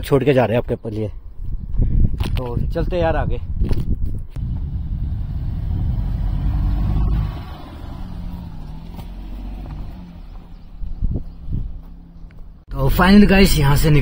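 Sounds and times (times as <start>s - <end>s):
car engine and tyres rumbling: 4.2s - 14.0s
car engine hum: 4.4s - 12.7s.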